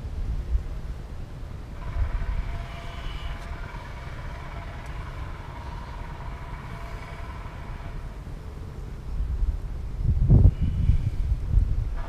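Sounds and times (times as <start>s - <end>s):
wind rumbling on microphone: 0.0s - 12.0s
honeybees buzzing: 1.8s - 8.9s.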